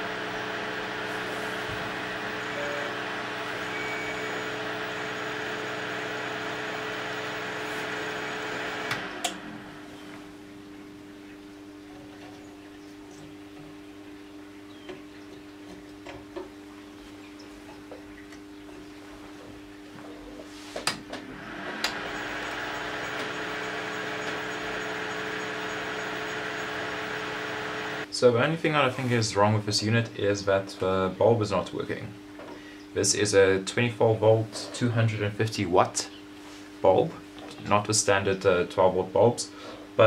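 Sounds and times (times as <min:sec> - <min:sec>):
motor whirring hum: 0:00.0 - 0:10.3, 0:21.2 - 0:28.1
low electrical hum: 0:00.0 - 0:40.0.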